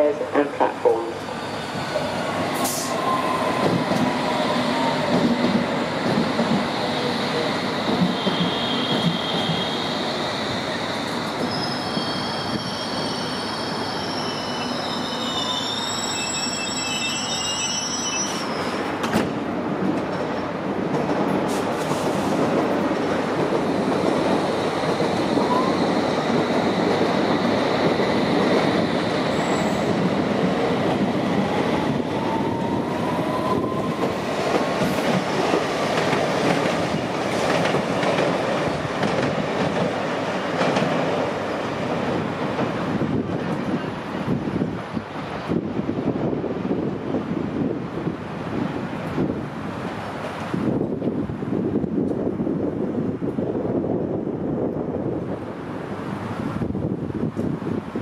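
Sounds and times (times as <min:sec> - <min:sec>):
train wheels rumbling on rails: 0:01.6 - 0:16.9, 0:17.9 - 0:58.0
train wheel squeal: 0:08.1 - 0:10.1, 0:10.9 - 0:18.9, 0:25.4 - 0:26.0, 0:29.3 - 0:30.0.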